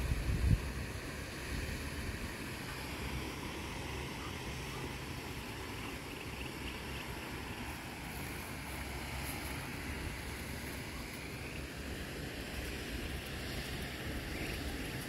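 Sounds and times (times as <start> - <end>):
wind rumbling on microphone: 0.0 - 3.2.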